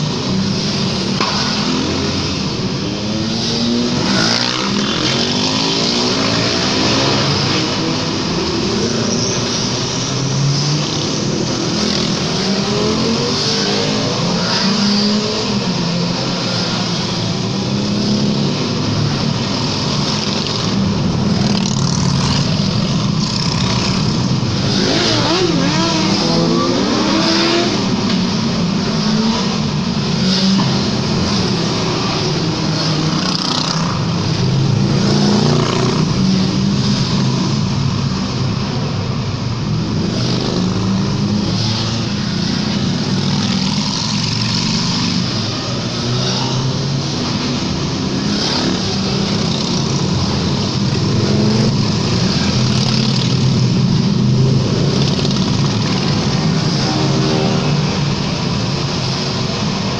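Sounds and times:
motorcycles riding past revving: 21.4s - 37.6s.

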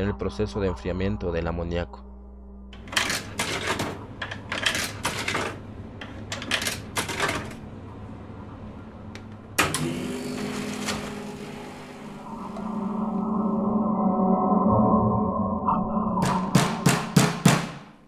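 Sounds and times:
steady low hum: 0.0s - 6.4s
machine clattering and knocking: 2.8s - 7.6s.

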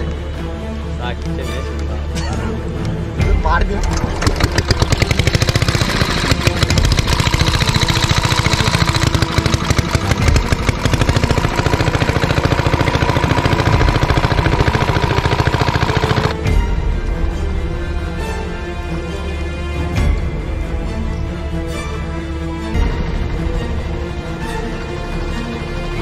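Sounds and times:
small engine driving water pump: 3.8s - 16.4s.

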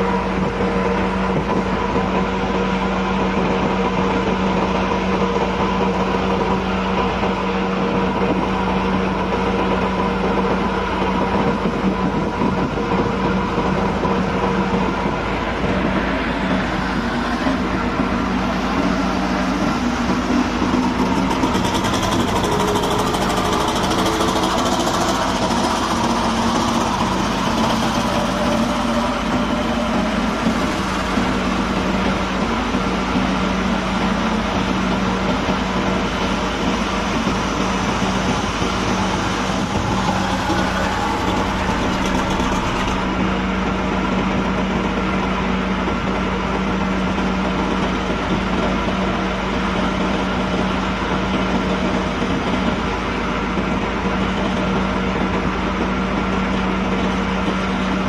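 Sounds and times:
steady engine drone: 0.0s - 58.0s
diesel truck engine driving past: 13.4s - 47.6s.

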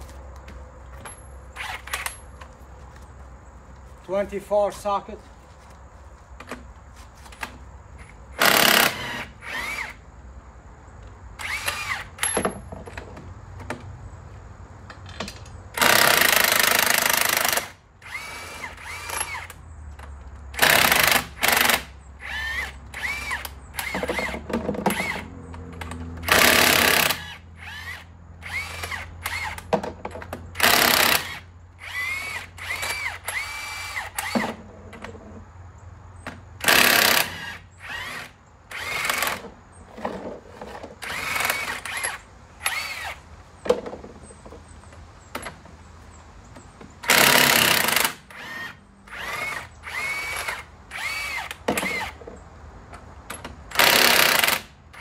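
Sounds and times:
power tool whining in bursts: 8.0s - 10.0s, 11.4s - 12.5s, 15.7s - 19.6s, 20.6s - 29.7s, 30.5s - 34.6s, 36.6s - 40.1s, 40.9s - 43.2s, 47.0s - 52.2s, 53.7s - 55.0s.

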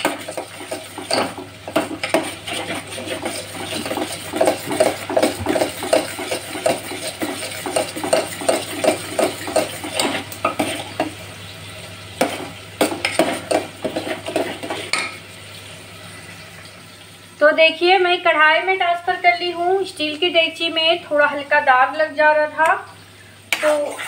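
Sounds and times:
metal ladle scraping a steel pot: 0.0s - 11.1s.

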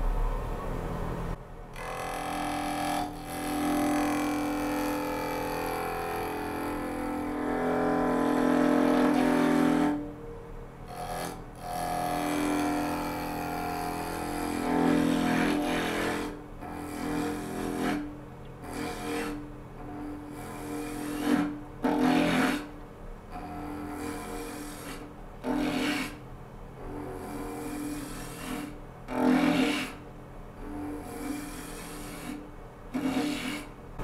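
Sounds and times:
lathe tool cutting wood: 1.8s - 10.0s, 10.9s - 18.0s, 19.9s - 22.6s, 26.9s - 30.0s.

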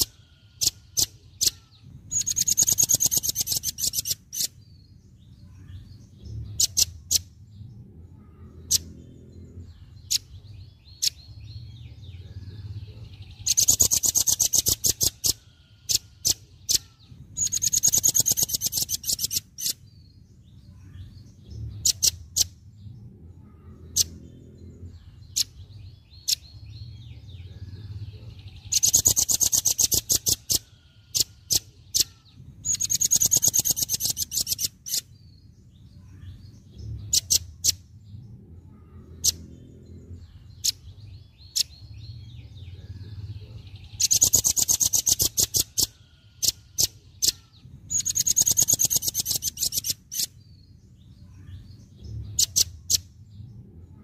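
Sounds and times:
bird chips and chattering trills: 0.0s - 4.9s, 5.5s - 7.5s, 12.6s - 20.0s, 20.7s - 22.7s, 27.9s - 35.3s, 36.0s - 38.0s, 38.7s - 53.2s
faint low rumble: 4.8s - 13.4s, 20.0s - 28.8s, 35.2s - 44.0s, 50.4s - 54.0s.

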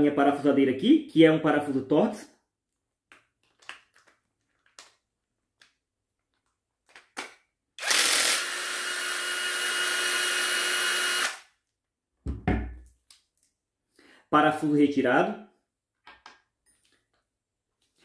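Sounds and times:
cordless drill running: 7.8s - 11.5s
dull knock: 12.3s - 12.8s.

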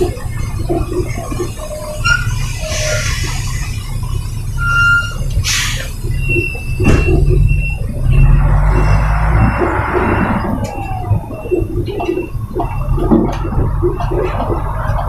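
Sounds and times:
diesel engine rumble: 0.0s - 15.0s
high-pitched squeals: 0.0s - 15.0s
air brake hisses: 2.5s - 3.7s, 5.4s - 5.9s.

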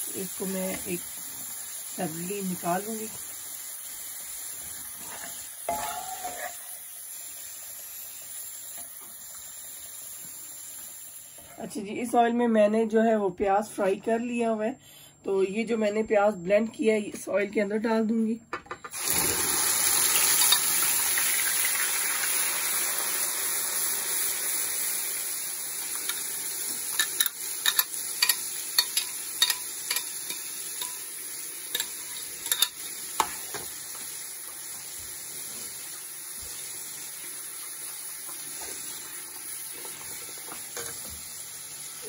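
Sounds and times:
paste sizzling in hot oil: 0.0s - 11.4s, 18.9s - 42.0s
utensil clinking against pan: 27.0s - 31.0s.

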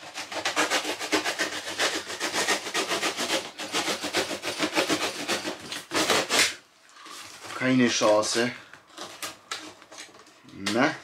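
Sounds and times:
box cutter sawing through cardboard: 0.0s - 6.6s.

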